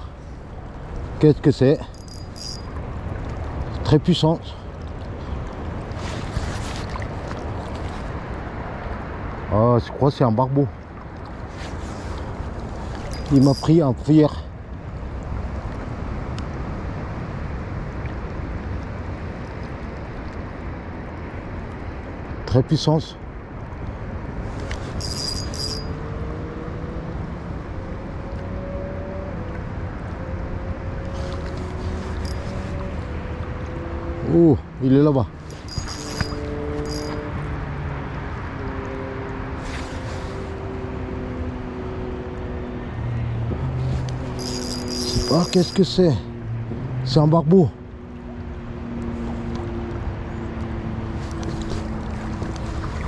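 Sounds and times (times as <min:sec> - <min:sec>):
wind: 0:00.0 - 0:53.0
fishing reel gears whining: 0:01.8 - 0:02.7, 0:13.0 - 0:13.8, 0:24.9 - 0:26.0, 0:32.1 - 0:32.7, 0:35.4 - 0:37.2, 0:44.3 - 0:46.0
river water rushing: 0:10.8 - 0:14.4, 0:31.1 - 0:33.3, 0:35.0 - 0:38.5, 0:43.6 - 0:46.3, 0:50.9 - 0:53.0
wind rumbling on microphone: 0:39.3 - 0:47.1.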